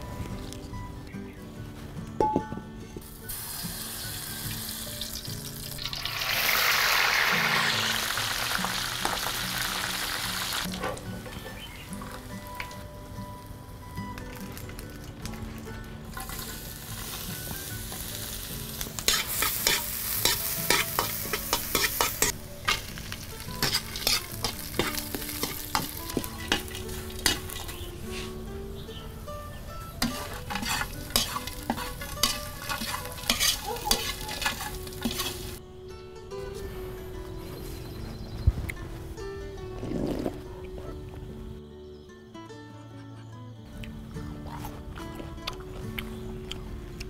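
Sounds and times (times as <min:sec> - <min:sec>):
food sizzling in a wok: 0:03.1 - 0:10.7, 0:16.2 - 0:28.4, 0:30.0 - 0:35.6
metal spatula scraping a pan: 0:19.1 - 0:28.4, 0:30.0 - 0:35.6.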